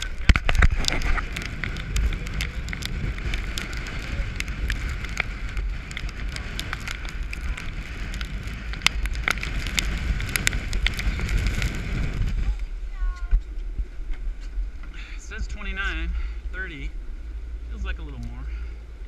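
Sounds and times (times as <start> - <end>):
waves rushing along hull: 0.0 - 13.0
wind buffeting microphone: 0.0 - 19.0.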